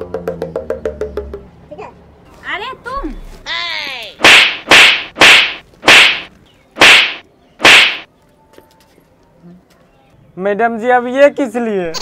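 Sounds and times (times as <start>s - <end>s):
whip cracks: 4.2s - 8.1s.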